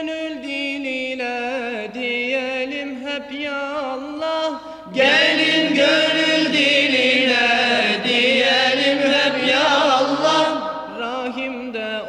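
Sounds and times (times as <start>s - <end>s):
voices chanting a devotional hymn: 0.0s - 12.0s.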